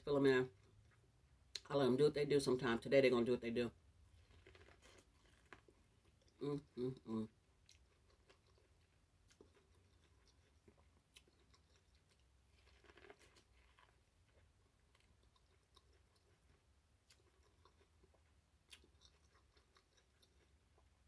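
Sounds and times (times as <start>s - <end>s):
faint chewing corn: 0.4s - 1.8s, 4.1s - 21.0s
small crunches and clicks: 4.2s - 6.3s, 11.2s - 14.0s.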